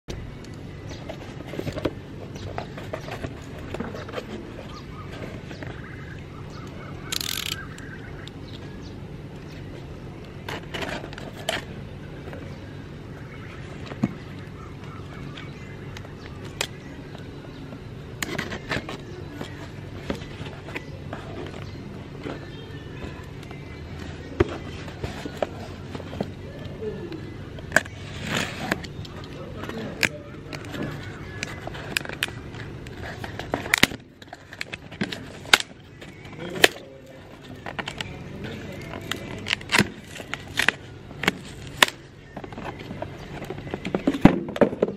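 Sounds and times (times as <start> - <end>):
low background hum: 0.1 - 44.9.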